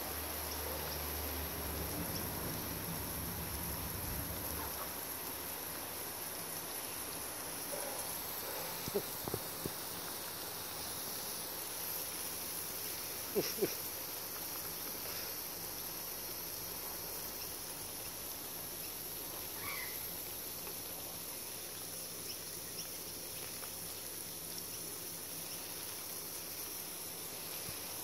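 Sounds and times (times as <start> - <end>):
garden water spray hissing: 0.0 - 28.0.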